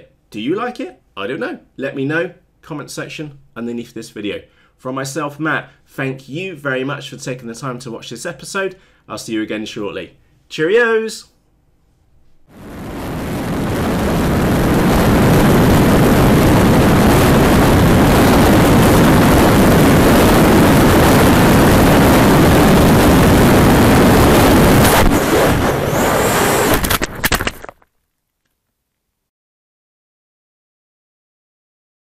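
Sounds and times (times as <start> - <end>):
wind rushing: 12.5 - 27.2
propeller noise: 12.6 - 27.5.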